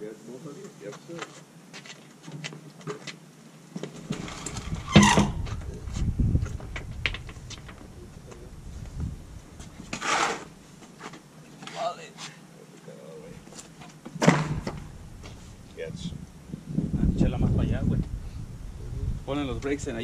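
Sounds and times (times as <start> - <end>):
low rumbling with knocks: 4.1 - 10.0.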